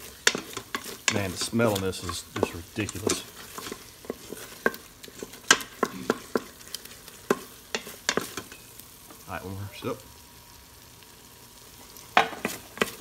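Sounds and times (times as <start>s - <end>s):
wooden spoon scraping metal pot: 0.0s - 8.7s
faint sizzle: 0.0s - 13.0s.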